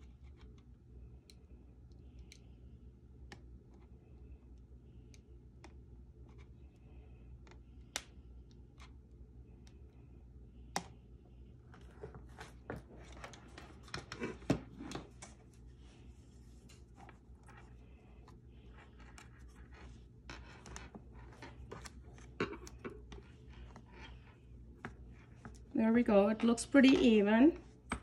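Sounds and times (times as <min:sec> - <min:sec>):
hands rustling and tapping: 0:26.8 - 0:28.0.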